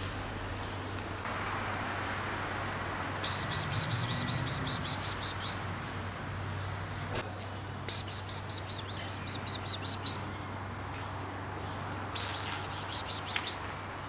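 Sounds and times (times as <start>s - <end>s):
songbird chirping: 3.2s - 6.0s, 7.9s - 13.8s.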